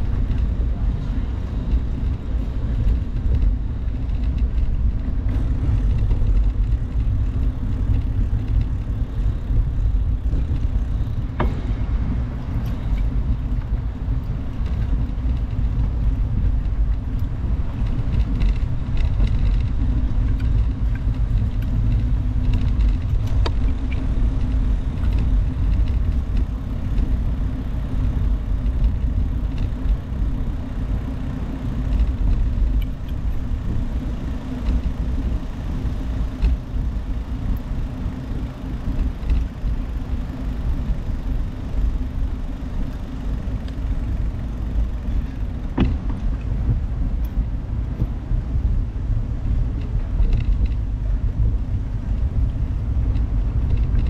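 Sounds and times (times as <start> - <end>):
bicycle tyres rolling over pavers: 0.0 - 54.0
wind buffeting microphone: 0.0 - 54.0.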